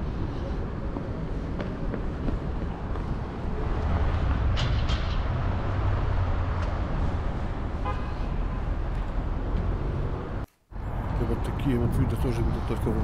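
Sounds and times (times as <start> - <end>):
road traffic rumble: 0.0 - 13.0
car horn toot: 7.8 - 8.6.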